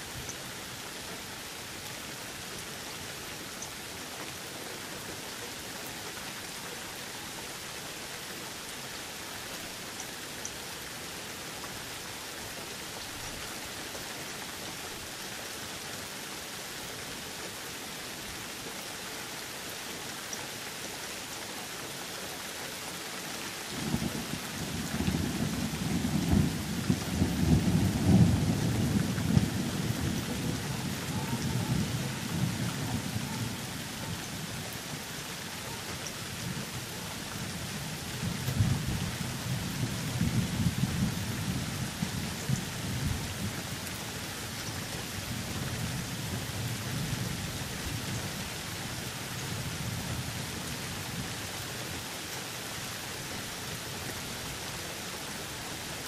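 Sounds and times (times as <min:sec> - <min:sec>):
steady rain falling: 0:00.0 - 0:56.0
low thunder rumbling: 0:23.8 - 0:34.5.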